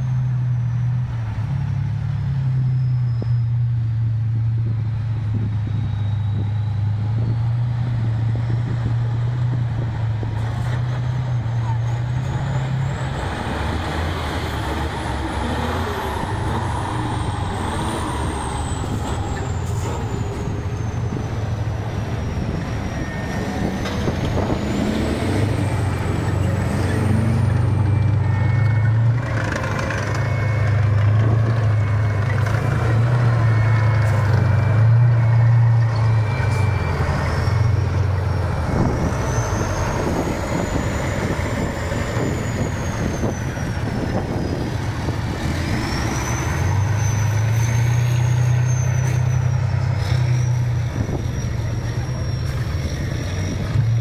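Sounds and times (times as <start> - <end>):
diesel truck engine running hard: 0.0 - 54.0
thin whistle: 2.6 - 3.7, 5.6 - 7.5.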